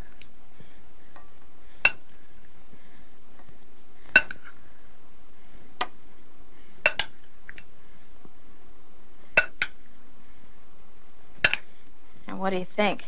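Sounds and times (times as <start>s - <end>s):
steady faint hiss: 0.0s - 13.0s.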